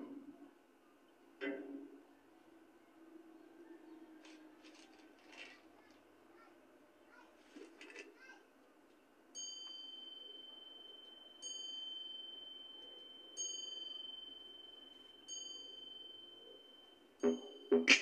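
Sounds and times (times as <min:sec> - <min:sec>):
high bell-like chime: 0:09.4 - 0:17.8.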